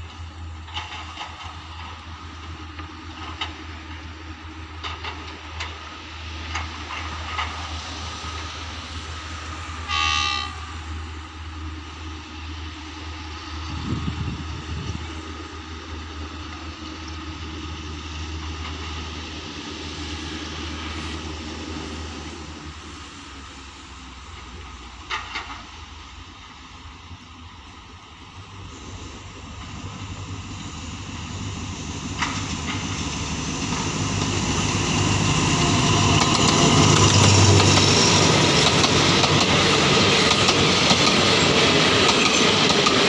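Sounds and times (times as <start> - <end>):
distant diesel locomotive engine drone: 0.0 - 43.0
train horn blast: 9.8 - 11.1.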